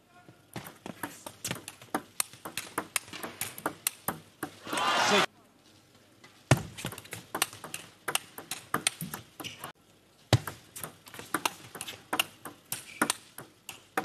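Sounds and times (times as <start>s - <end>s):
table tennis ball clicking: 1.0s - 4.6s, 6.9s - 9.7s, 10.4s - 14.0s.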